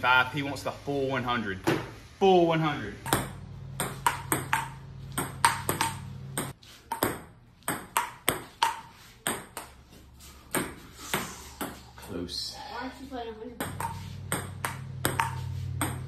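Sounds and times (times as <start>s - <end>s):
steady low hum: 2.0s - 6.6s, 9.6s - 16.0s
table tennis ball hits: 3.0s - 9.8s, 10.5s - 11.8s, 13.6s - 16.0s.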